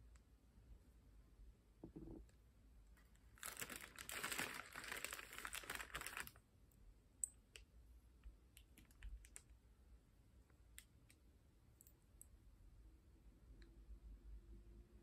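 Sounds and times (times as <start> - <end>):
plastic packet crinkling: 3.4 - 6.4
faint clicks of small picks: 7.2 - 9.6.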